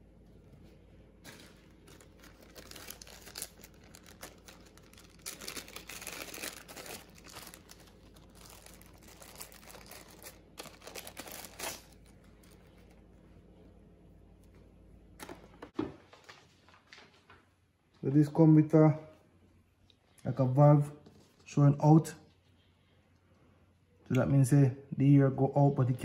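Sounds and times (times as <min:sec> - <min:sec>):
plastic bag crinkling: 0:01.2 - 0:13.1.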